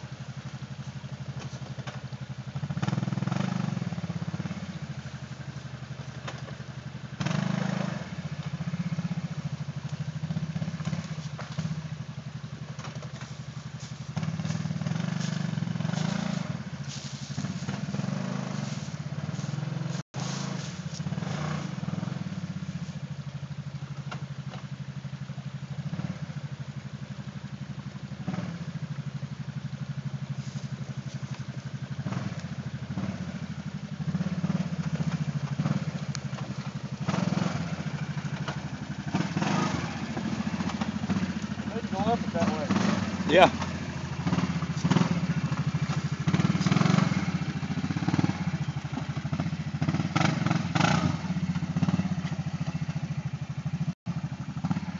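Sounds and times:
atv engine revving: 0.0 - 54.9.

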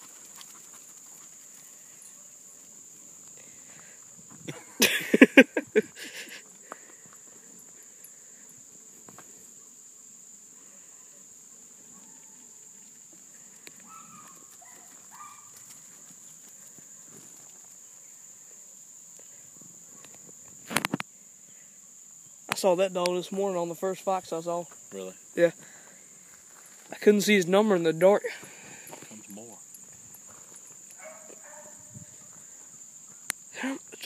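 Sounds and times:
insects droning: 0.0 - 34.0
hounds baying: 13.8 - 15.7, 30.2 - 33.2.

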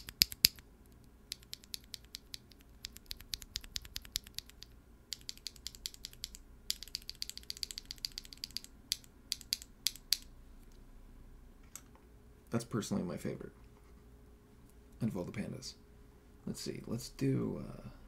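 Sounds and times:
mechanical keyboard key clacks: 0.0 - 0.6, 1.3 - 10.2.

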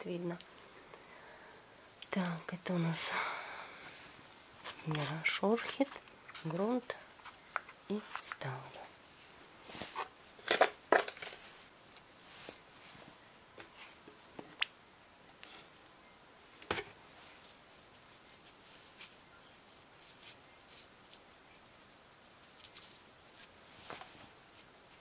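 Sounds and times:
fingers rustling potting soil: 3.8 - 10.1, 17.2 - 25.0.

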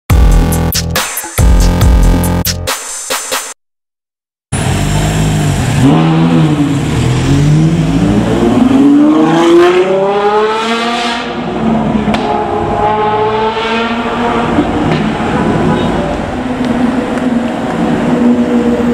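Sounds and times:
sports car engine revving: 4.6 - 18.9.

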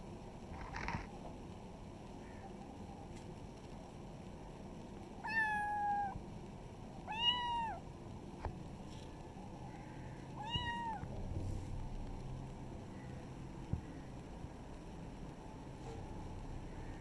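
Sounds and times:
kitten meowing: 5.2 - 6.2, 7.1 - 7.8, 10.4 - 11.0.

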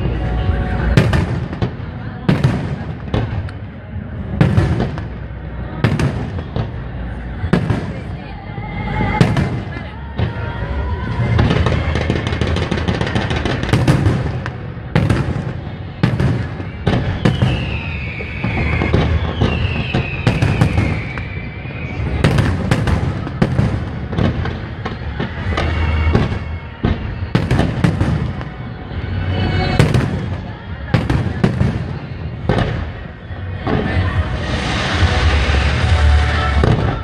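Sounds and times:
firework crackling: 0.0 - 37.0
falling firework whistles: 9.1 - 28.6.

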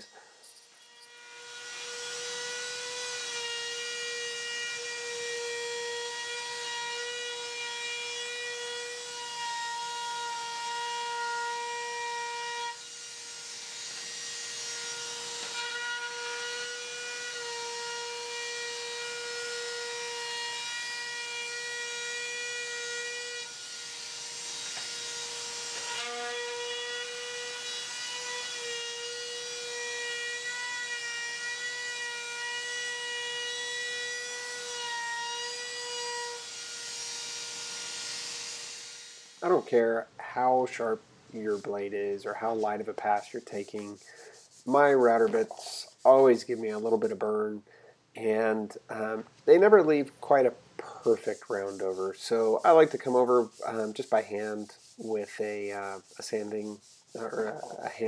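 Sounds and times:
trim router whining: 0.0 - 19.8.

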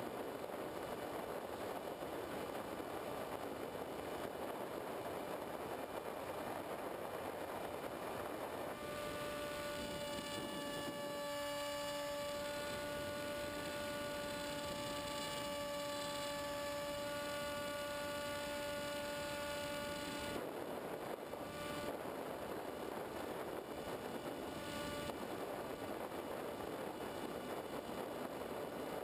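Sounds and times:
wind rushing over airframe: 0.0 - 29.0
model plane electric motor whine: 7.2 - 29.0.

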